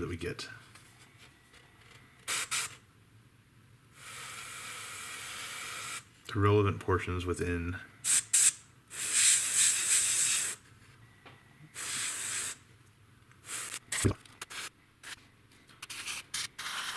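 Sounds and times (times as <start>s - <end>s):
airbrush spraying hiss: 4.0s - 6.1s, 8.1s - 10.6s, 11.7s - 12.6s, 13.4s - 15.2s, 15.8s - 16.9s.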